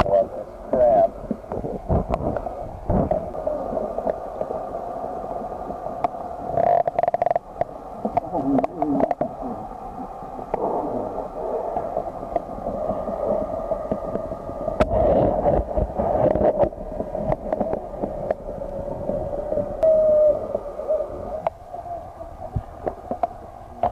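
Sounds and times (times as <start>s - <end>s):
sharp underwater clicks and knocks: 0.0s - 3.4s, 5.9s - 9.4s, 11.7s - 13.1s, 13.8s - 18.8s, 22.5s - 23.9s
muffled underwater water hum: 0.0s - 23.9s.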